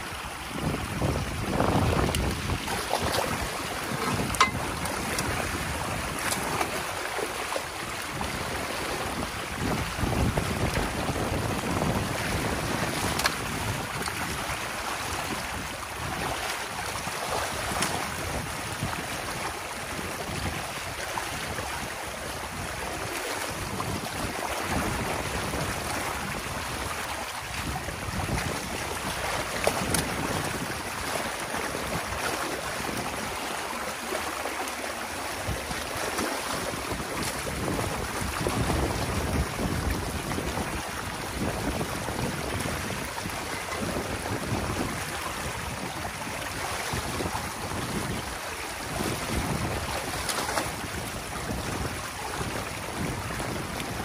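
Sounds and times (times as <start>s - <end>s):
water rushing: 0.0s - 54.0s.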